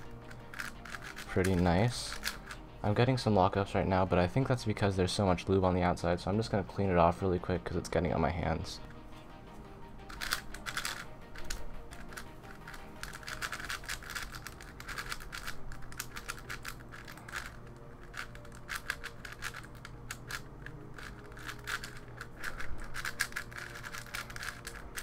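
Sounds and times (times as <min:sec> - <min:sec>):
plastic puzzle cube clicking: 0:00.0 - 0:02.6, 0:10.1 - 0:25.0.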